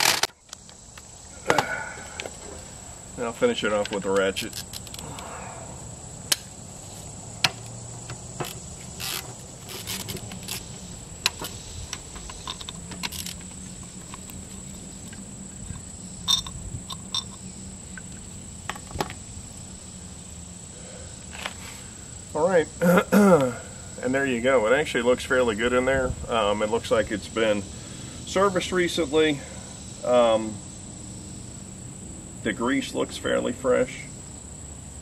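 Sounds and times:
high-pitched insect drone: 0:00.0 - 0:35.0
hand ratchet clicking: 0:04.4 - 0:05.2, 0:07.4 - 0:14.4, 0:16.3 - 0:17.4.

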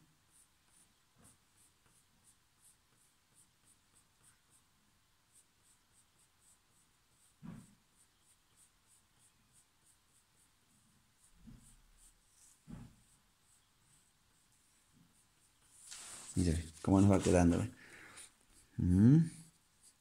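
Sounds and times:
pencil scratching on paper: 0:00.2 - 0:18.7, 0:19.4 - 0:20.0
thump: 0:12.7 - 0:13.0.

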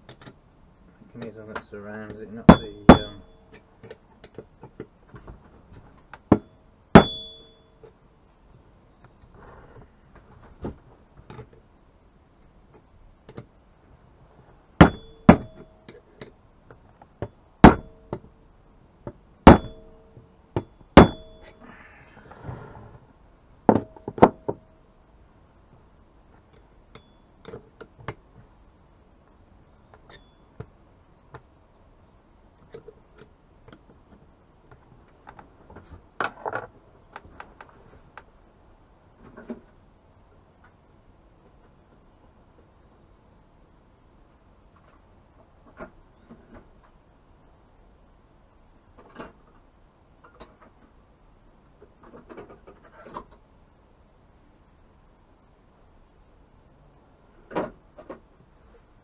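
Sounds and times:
hammer striking metal: 0:02.5 - 0:03.6, 0:06.3 - 0:07.7, 0:19.5 - 0:21.6.

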